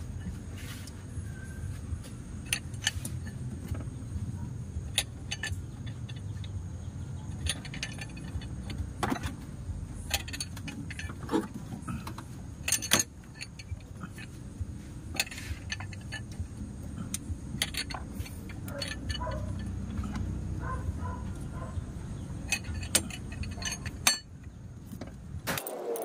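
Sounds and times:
low steady hum: 0.0 - 25.7
metal hand tools clinking: 7.2 - 9.2, 10.0 - 11.3, 17.6 - 20.8, 22.4 - 24.3.

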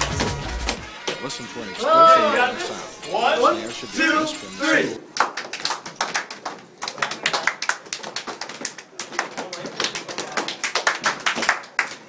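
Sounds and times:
voices: 1.2 - 5.0
hands clapping and slapping: 5.1 - 12.0.

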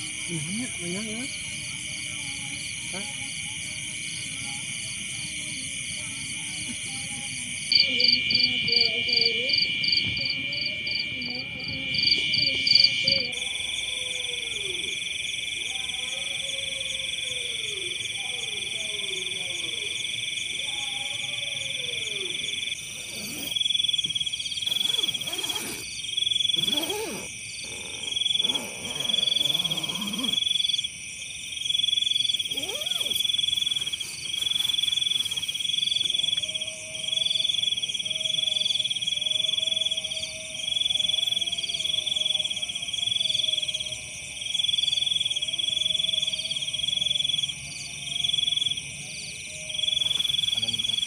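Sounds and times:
insects buzzing drone: 0.0 - 51.0
frog high pulsing call: 21.2 - 30.9, 31.8 - 44.0, 49.7 - 51.0.

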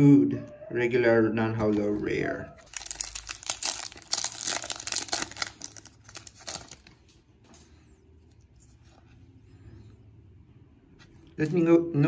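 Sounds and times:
faint rustling of cards: 1.6 - 10.1
foil wrapper crinkling and tearing: 2.6 - 7.1.

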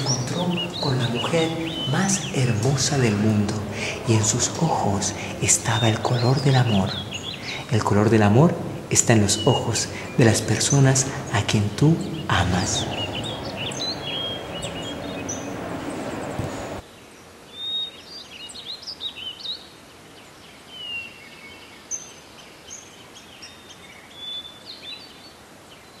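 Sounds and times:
steady rushing noise: 0.0 - 16.8
small birds chirping: 0.0 - 26.0.

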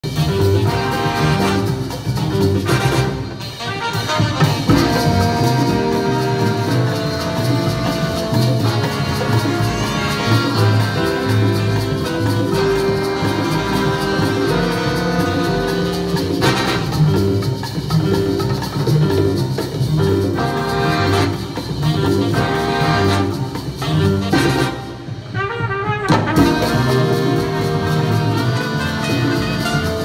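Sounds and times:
horn section: 0.0 - 17.4, 20.3 - 30.0
double bass line: 0.0 - 25.2, 26.1 - 30.0
congas and timbales: 0.0 - 30.0
latin big band playing: 0.0 - 30.0.

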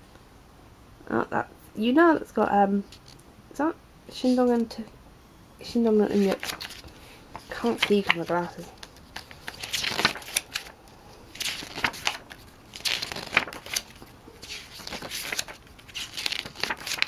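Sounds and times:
booklet pages turning: 2.9 - 3.2, 6.0 - 17.0.

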